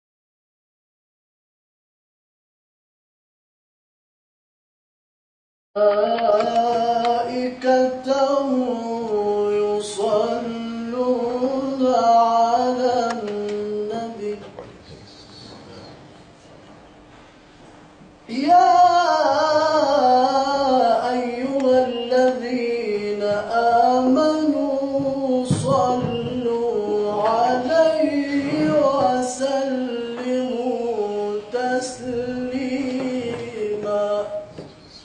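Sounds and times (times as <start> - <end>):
man chanting unaccompanied: 5.8 - 16.0, 18.3 - 35.0.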